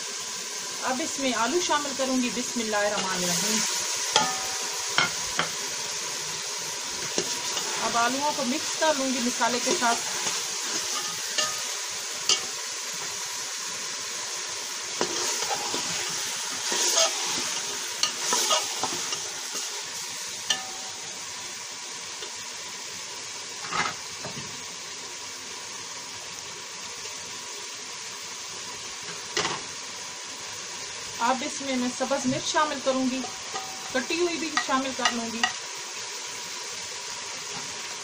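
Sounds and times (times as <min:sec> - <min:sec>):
food sizzling: 0:00.0 - 0:38.0
spoon scraping a steel pot: 0:09.7 - 0:11.7, 0:16.6 - 0:19.7.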